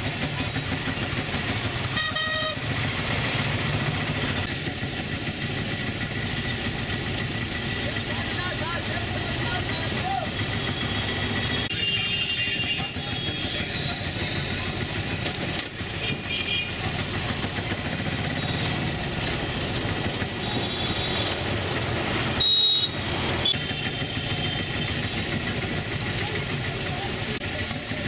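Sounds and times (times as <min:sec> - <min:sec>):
auto-rickshaw engine running: 0:00.0 - 0:28.0
short high horn beeps: 0:01.9 - 0:02.7.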